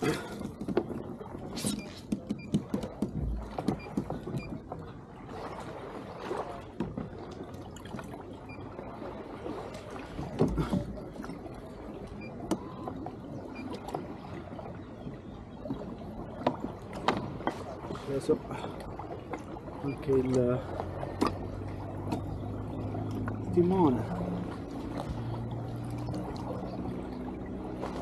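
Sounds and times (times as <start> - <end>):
water lapping against kayak hull: 0.0 - 28.0
gear knocking on boat: 0.1 - 5.0, 9.8 - 14.2, 15.0 - 28.0.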